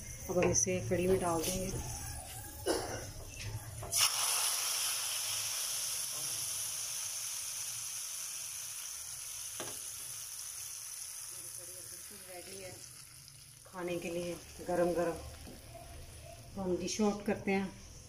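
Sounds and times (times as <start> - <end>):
hot oil sizzling: 3.9 - 17.3.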